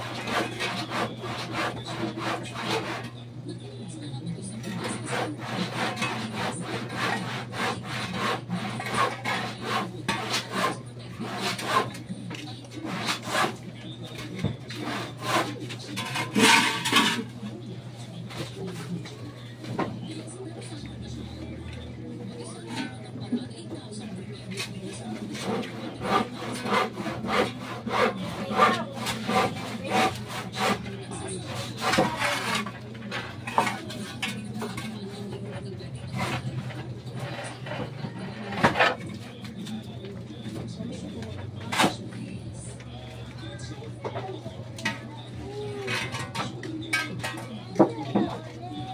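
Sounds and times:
handsaw cutting wood: 0:00.0 - 0:03.2, 0:04.8 - 0:12.0, 0:12.8 - 0:13.6, 0:14.7 - 0:17.2, 0:25.3 - 0:32.7.

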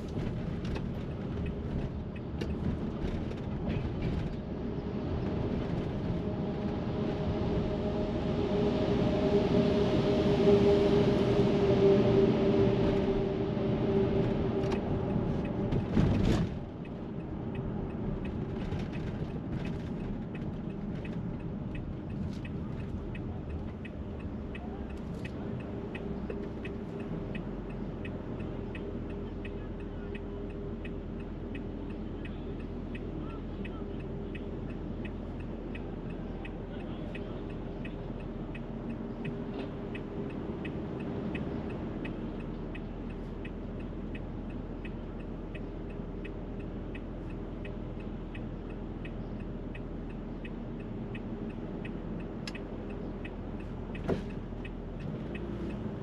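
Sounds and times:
low traffic hum: 0:00.0 - 0:56.0
loud vehicle rumbling past: 0:04.5 - 0:16.6
faint ticking: 0:20.3 - 0:56.0.

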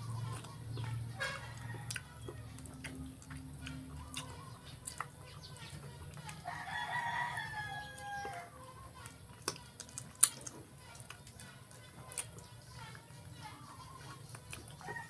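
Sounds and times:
rooster crowing: 0:01.1 - 0:02.7, 0:06.3 - 0:09.0, 0:14.8 - 0:15.0.

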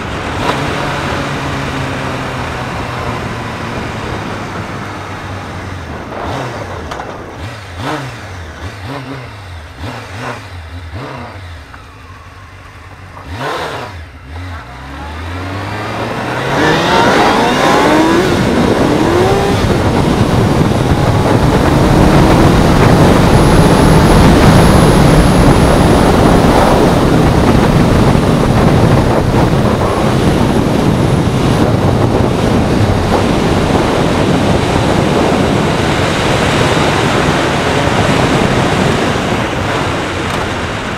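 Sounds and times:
wind rush on microphone: 0:00.0 - 0:10.0, 0:15.4 - 0:40.9
motorcycle engine revving: 0:00.0 - 0:40.9.

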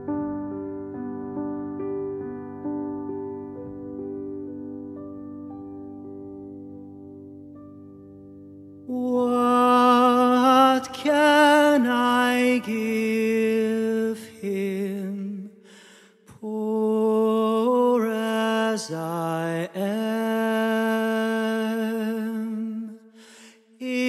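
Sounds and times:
man singing a carol: 0:08.9 - 0:15.6, 0:16.3 - 0:23.0, 0:23.8 - 0:24.0.

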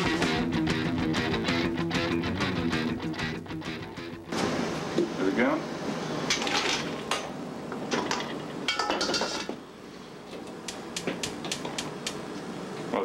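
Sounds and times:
metal cookware clattering: 0:06.2 - 0:07.3, 0:07.9 - 0:09.6.

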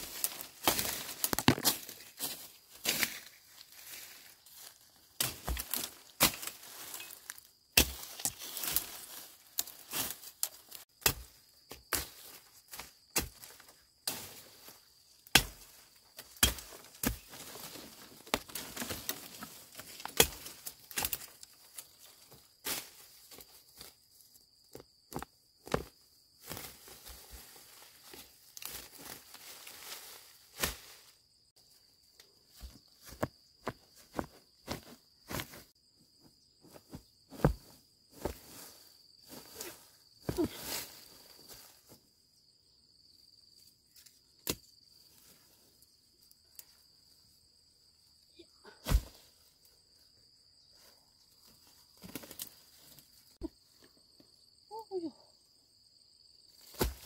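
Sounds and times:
rustling leaves: 0:00.0 - 0:10.9, 0:26.4 - 0:31.3
twigs snapping: 0:00.1 - 0:02.0
machete chopping brush: 0:07.8 - 0:08.9, 0:11.0 - 0:14.4, 0:15.3 - 0:17.5, 0:48.8 - 0:49.2, 0:56.7 - 0:57.0
high insect whine: 0:20.4 - 0:57.0.

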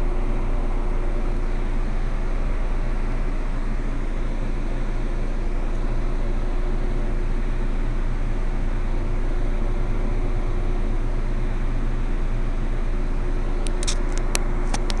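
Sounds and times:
steady hum and hiss: 0:00.0 - 0:15.0.

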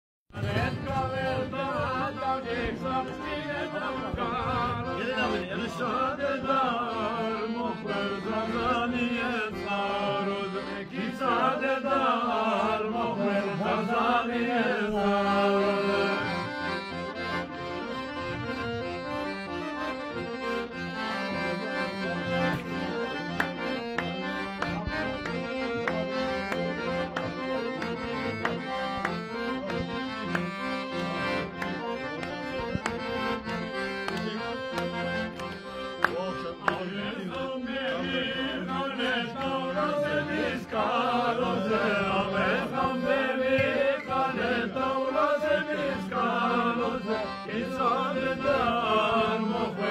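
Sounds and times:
people singing: 0:00.4 - 0:16.8, 0:36.6 - 0:49.9
accordion playing folk melody: 0:00.4 - 0:49.9.

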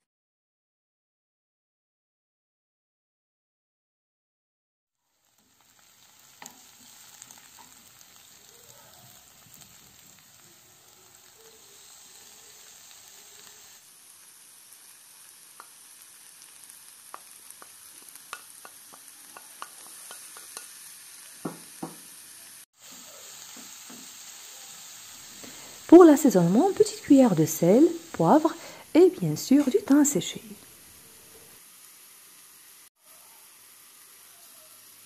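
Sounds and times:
vegetables sizzling in frying pan: 0:05.0 - 0:35.0
wooden spatula tapping and scraping pan: 0:17.1 - 0:20.8, 0:21.4 - 0:22.1.

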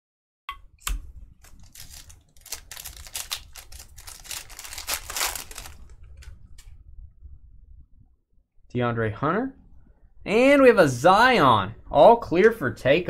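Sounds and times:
trading cards clicking and rustling: 0:01.4 - 0:06.3.

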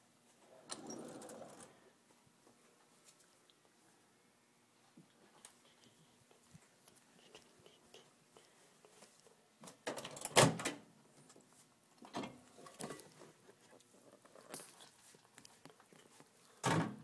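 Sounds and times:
door shutting with a thud: 0:16.6 - 0:17.0.

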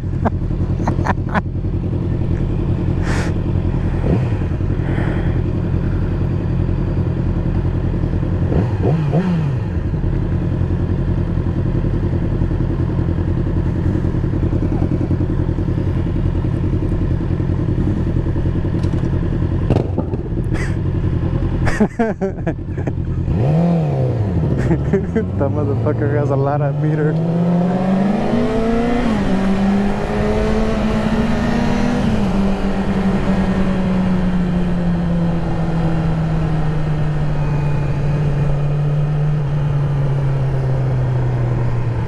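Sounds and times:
motorcycle engine idling: 0:00.0 - 0:08.6, 0:09.6 - 0:26.3.

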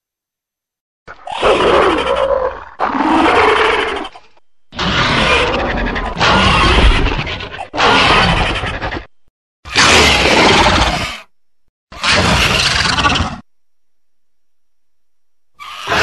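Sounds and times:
harsh monster roars: 0:01.1 - 0:09.1, 0:09.7 - 0:11.3, 0:12.0 - 0:13.4, 0:15.6 - 0:16.0.

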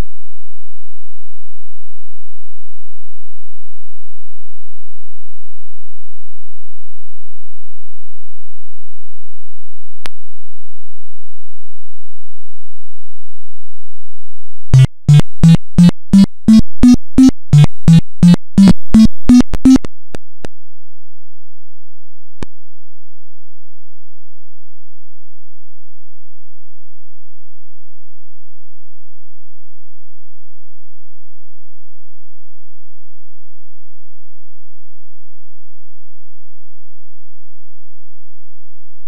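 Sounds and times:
steady electronic buzz: 0:14.8 - 0:19.9.

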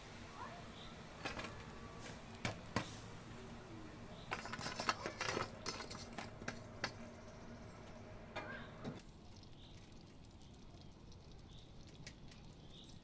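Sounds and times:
tongs and charcoal clattering on metal: 0:04.2 - 0:07.4.

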